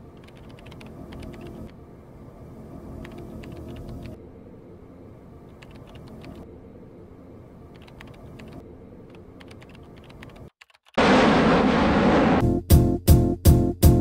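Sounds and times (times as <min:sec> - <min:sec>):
low steady background noise: 0:00.0 - 0:10.5.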